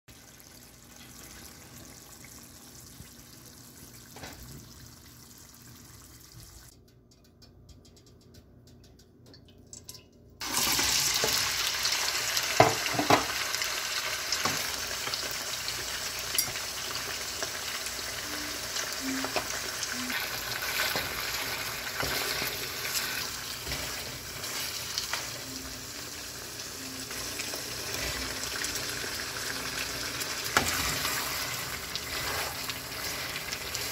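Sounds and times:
meat sizzling in hot oil: 10.4s - 33.9s.

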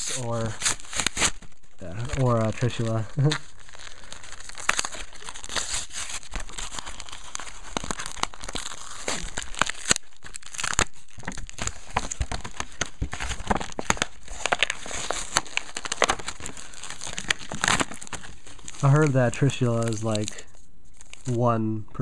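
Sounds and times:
plastic and foil packaging crinkling: 0.0s - 21.5s.

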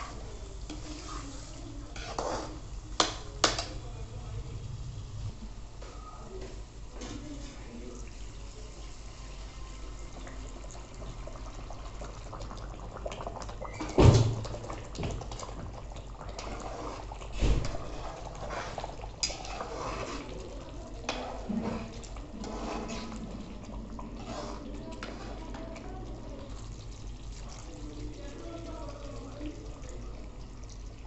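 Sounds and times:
steel ladle scraping and stirring: 0.0s - 3.6s, 16.2s - 26.7s
liquid pouring and bubbling: 8.2s - 31.0s.

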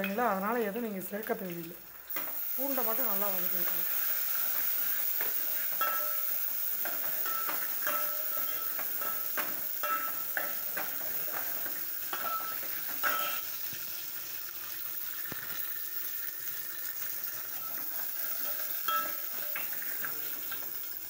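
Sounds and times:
seeds frying in oil: 0.0s - 21.0s
ladle scraping and clinking pot: 12.1s - 13.4s, 18.4s - 19.7s.

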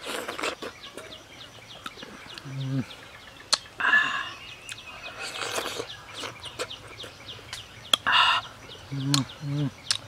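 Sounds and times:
slurp: 0.0s - 0.8s, 5.2s - 6.8s.

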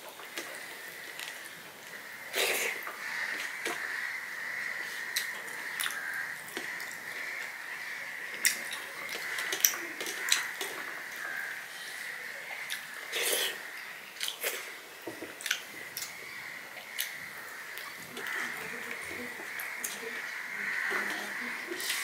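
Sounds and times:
wet eating clicks and smacks: 8.3s - 11.2s, 14.2s - 14.7s, 15.3s - 16.2s, 16.8s - 17.2s.

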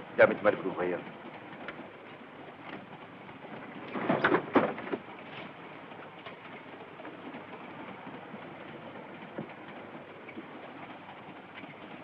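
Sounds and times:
train running noise: 0.0s - 12.0s.

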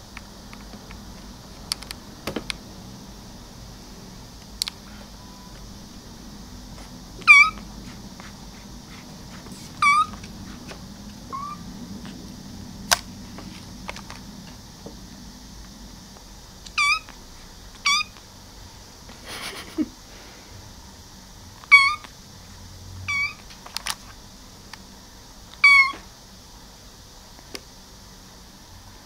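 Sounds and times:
kitten mewing: 7.2s - 10.2s, 11.3s - 11.7s, 16.7s - 17.1s, 21.6s - 22.1s, 23.1s - 23.4s, 25.6s - 26.1s.

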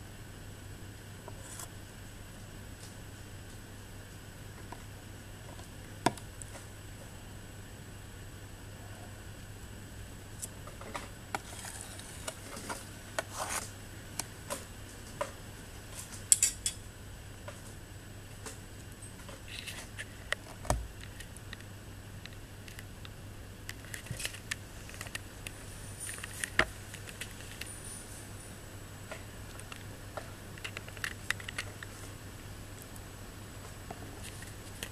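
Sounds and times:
faint low hum: 0.0s - 34.9s.

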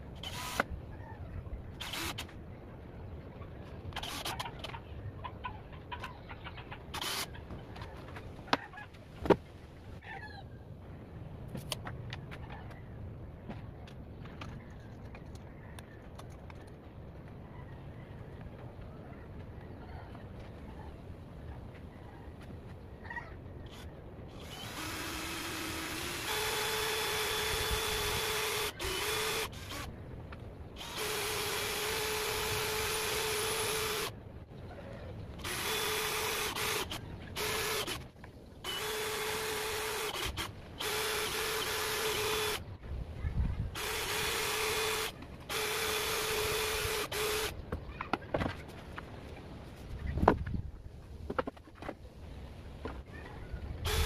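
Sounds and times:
cordless drill running in spurts: 0.2s - 0.7s, 1.8s - 2.2s, 7.0s - 7.3s, 23.7s - 29.9s, 30.8s - 34.1s, 35.4s - 38.0s, 38.7s - 42.6s, 43.8s - 47.5s.

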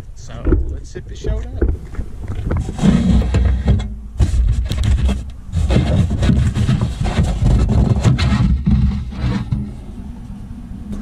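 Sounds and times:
heavy low rumble: 0.0s - 11.0s
handling knocks: 0.3s - 4.3s
cardboard package scraping metal: 1.2s - 9.7s.

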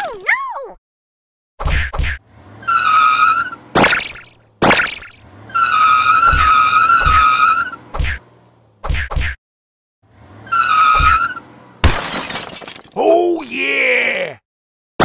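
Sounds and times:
tire squeal screech: 2.4s - 4.3s, 5.0s - 8.2s, 10.2s - 11.6s.

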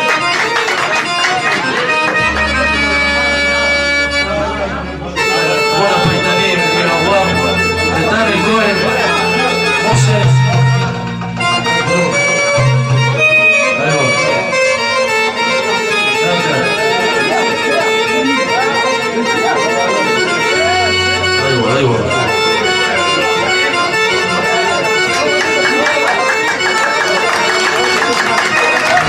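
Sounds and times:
accordion-like keyboard melody: 0.0s - 29.0s
low bass notes: 2.0s - 15.6s, 20.0s - 25.3s.

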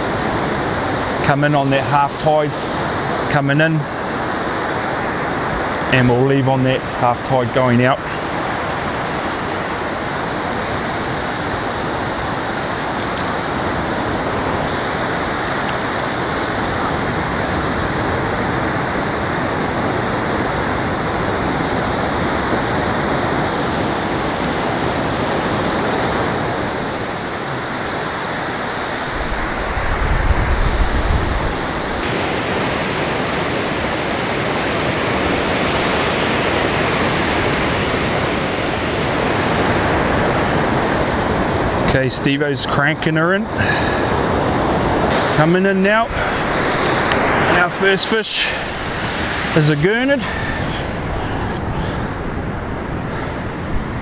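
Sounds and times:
surf washing over beach: 0.0s - 54.0s
short low rumble: 29.0s - 32.0s.

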